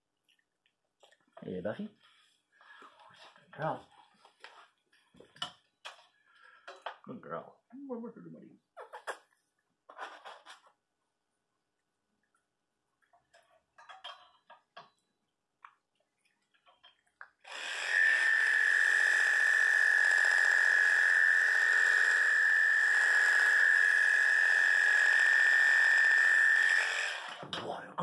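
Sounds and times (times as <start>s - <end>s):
electric clippers buzzing: 17.5s - 27.4s.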